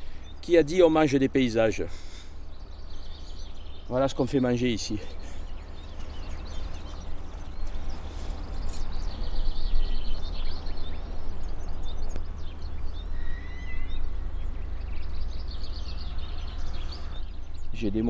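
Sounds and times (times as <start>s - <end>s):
small birds chirping: 0.0s - 18.0s
wind buffeting microphone: 5.2s - 13.1s.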